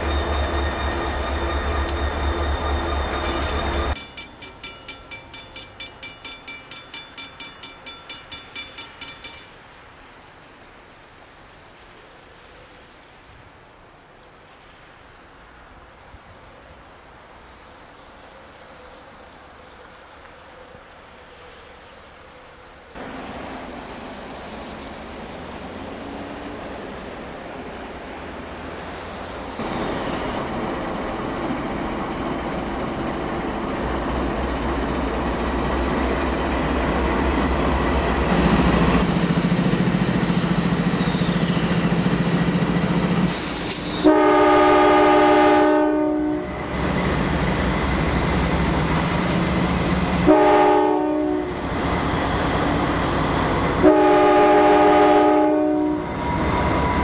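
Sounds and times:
diesel locomotive rumble: 0:00.0 - 0:09.9, 0:22.9 - 0:57.0
train air horn blasts: 0:43.3 - 0:46.6, 0:50.2 - 0:51.6, 0:53.8 - 0:56.1.

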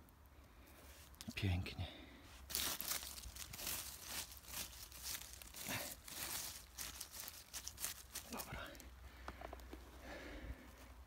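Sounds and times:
dry leaves rustling and crunching: 0:02.3 - 0:08.9.

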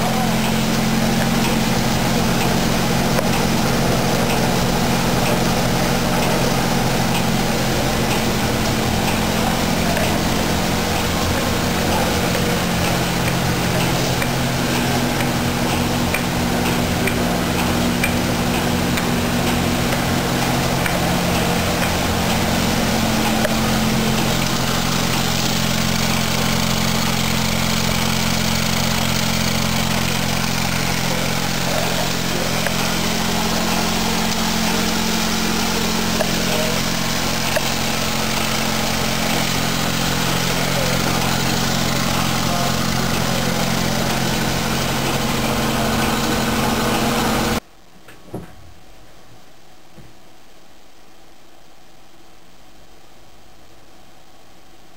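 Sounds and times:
low steady tones: 0:00.0 - 0:47.6
motor and blower noise: 0:00.0 - 0:47.6
machine hum: 0:00.0 - 0:47.9.

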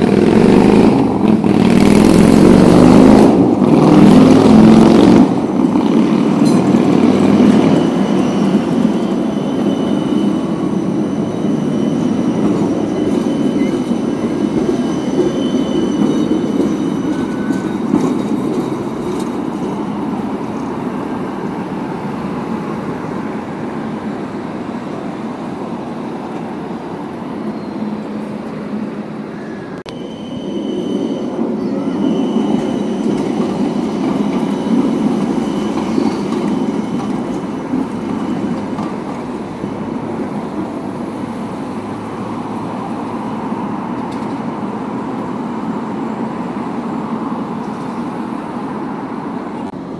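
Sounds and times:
tram wheels rumbling on rails: 0:00.0 - 0:49.9
high wheel squeal: 0:05.8 - 0:23.2, 0:27.2 - 0:28.4, 0:29.3 - 0:43.6.

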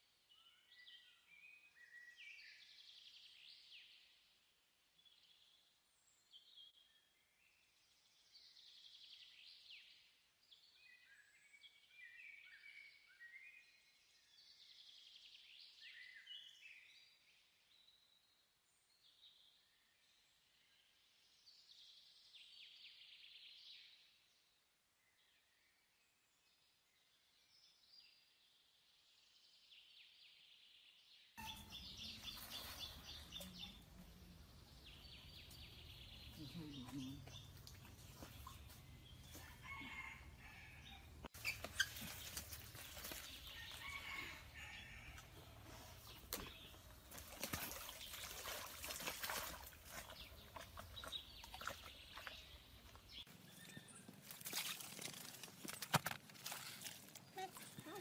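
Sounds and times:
outdoor background noise: 0:17.0 - 0:58.0
birdsong chirps and trills: 0:31.4 - 0:54.5.

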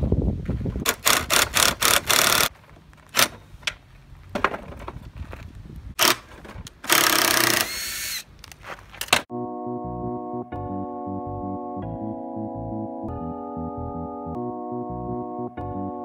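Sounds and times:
cordless drill driving screws: 0:00.9 - 0:02.5, 0:06.0 - 0:08.3.

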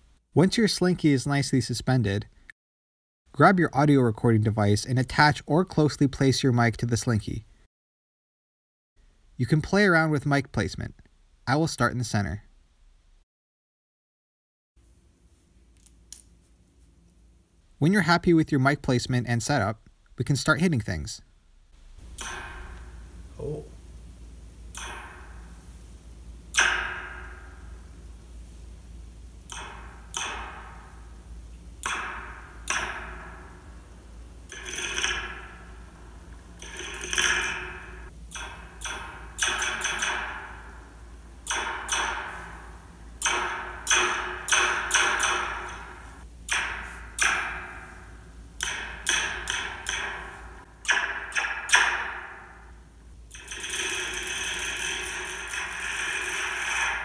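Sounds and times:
metallic rattling: 0:21.8 - 0:23.7, 0:24.7 - 0:57.0
metal slinky zapping: 0:29.5 - 0:57.0.

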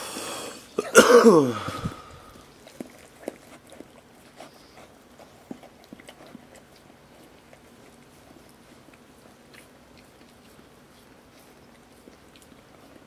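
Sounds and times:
dog licking puppies: 0:01.6 - 0:13.0.

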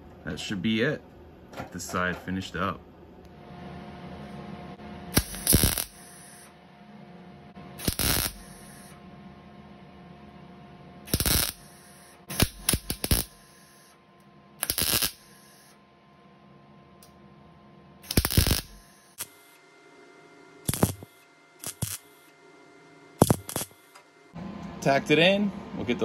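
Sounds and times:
welder arc bursts: 0:05.1 - 0:06.5, 0:07.8 - 0:09.0, 0:11.1 - 0:13.9, 0:14.6 - 0:15.7, 0:18.0 - 0:19.6, 0:20.6 - 0:22.2, 0:23.2 - 0:24.0.

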